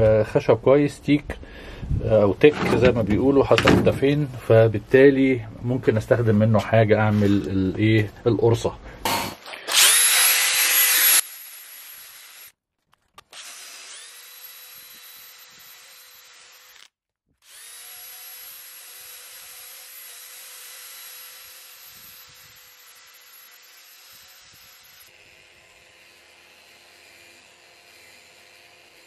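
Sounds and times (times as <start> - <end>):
drill motor whine: 9.7 - 12.5, 13.3 - 26.1.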